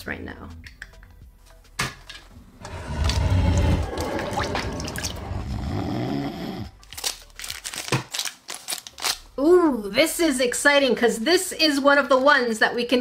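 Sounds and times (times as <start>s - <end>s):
water sloshing in a plastic bowl: 2.7s - 5.3s.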